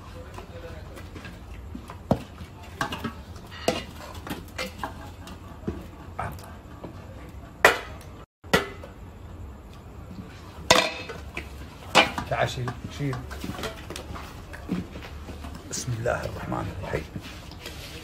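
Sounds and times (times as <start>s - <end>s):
metal utensils clinking on cookware: 2.6s - 6.2s, 10.7s - 14.3s.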